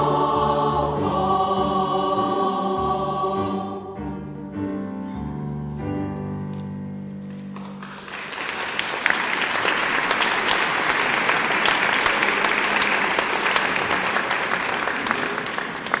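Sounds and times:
choir holding chord: 0.0 - 4.4
audience applauding: 7.5 - 16.0.

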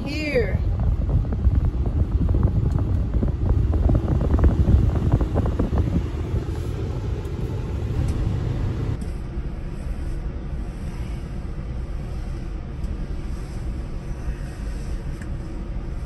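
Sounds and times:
wind buffeting microphone: 0.0 - 9.0
car engine running: 0.0 - 9.1
air conditioning blowing: 0.0 - 16.0.

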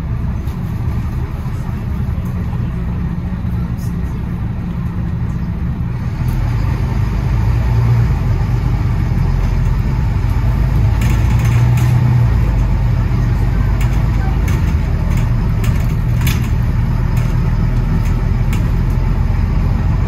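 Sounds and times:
bus engine drone: 0.0 - 20.0.

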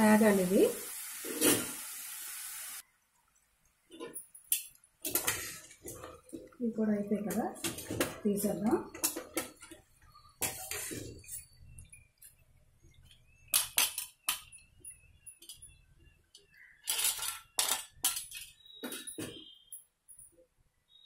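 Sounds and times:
crisp fried pieces clattering: 16.8 - 18.7.

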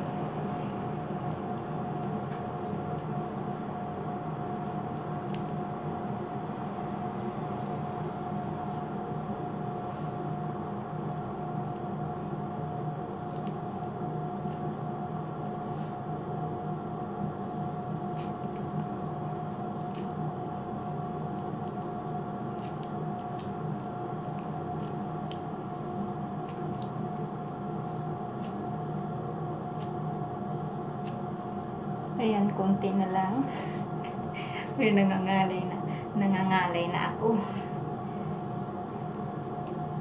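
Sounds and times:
steady hum: 0.0 - 40.0
sticky clicks and squishes of wax: 4.6 - 5.7, 26.4 - 27.6.

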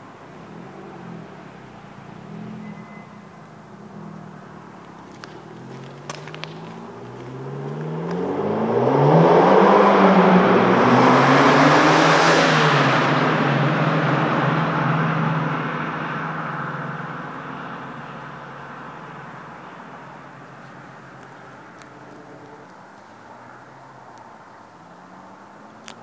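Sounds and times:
car revving past in tunnel: 6.4 - 19.5.

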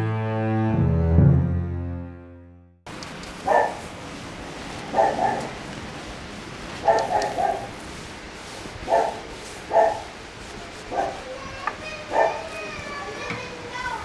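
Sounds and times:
low hiss: 2.9 - 14.0
dog barking: 3.4 - 3.9, 4.8 - 5.6, 6.8 - 7.8, 8.9 - 10.2, 10.9 - 11.3, 12.0 - 12.6.

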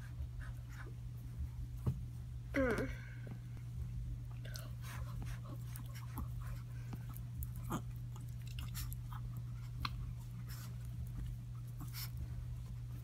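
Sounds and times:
steady low hum: 0.0 - 13.0
dog chewing with wet clicks: 5.3 - 12.3.

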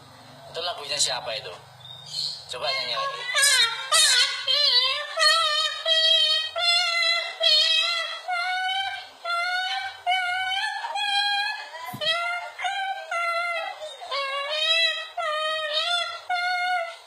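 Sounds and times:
cockatoo singing: 0.9 - 17.0.

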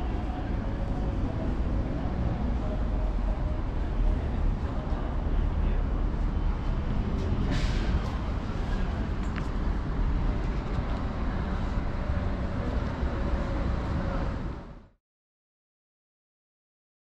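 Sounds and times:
city traffic rumble: 0.0 - 15.0.

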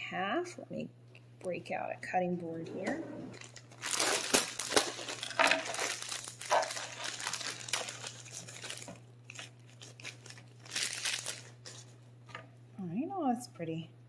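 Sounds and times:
plastic bag crinkling: 3.3 - 11.9.

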